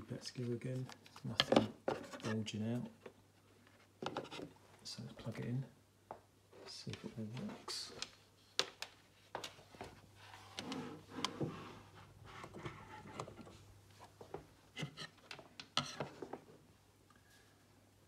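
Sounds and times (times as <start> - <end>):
rubbing and rustling: 6.5 - 16.6.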